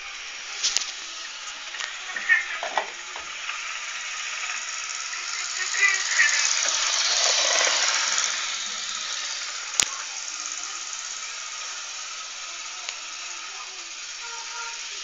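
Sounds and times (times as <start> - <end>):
model train whirring and rattling: 0.0 - 15.0.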